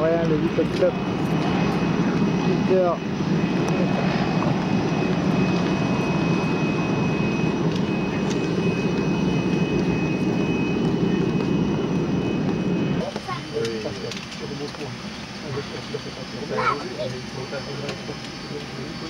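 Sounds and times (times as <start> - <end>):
aircraft turbine engine running: 0.0 - 19.0.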